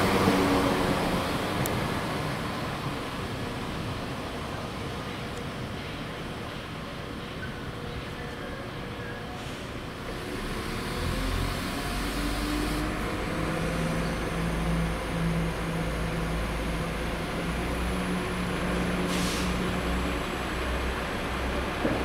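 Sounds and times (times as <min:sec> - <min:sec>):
diesel train engine rumbling: 0:00.0 - 0:22.0
short hisses: 0:19.1 - 0:19.7.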